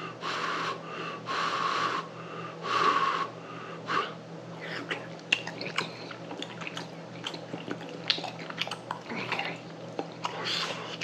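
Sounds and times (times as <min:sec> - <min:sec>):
man blowing sharp puffs of breath: 0:00.0 - 0:04.2.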